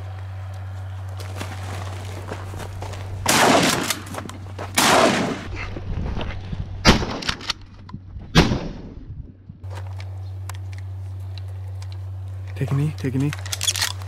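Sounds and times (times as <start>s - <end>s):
shotgun blasts: 3.2s - 4.2s, 4.8s - 5.5s, 8.3s - 8.9s.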